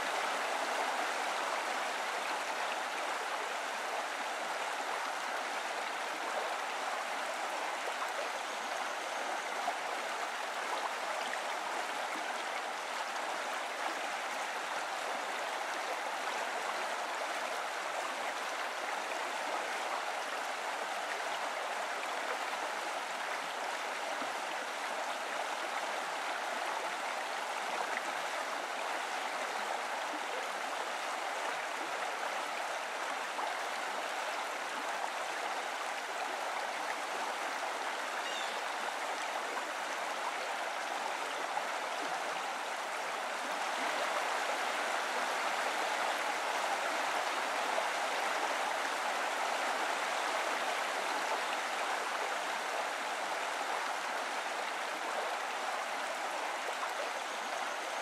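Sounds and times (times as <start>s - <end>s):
stream rushing: 0.0s - 58.0s.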